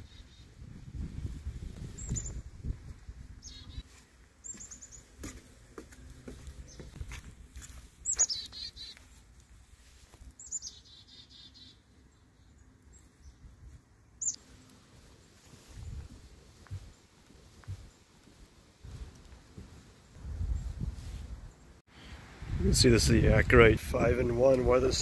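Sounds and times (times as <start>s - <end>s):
small birds chirping: 0.0s - 0.7s, 1.7s - 19.3s
wind rumble: 0.0s - 3.8s, 15.6s - 16.9s, 20.1s - 25.0s
bird warbling trill: 8.0s - 9.0s.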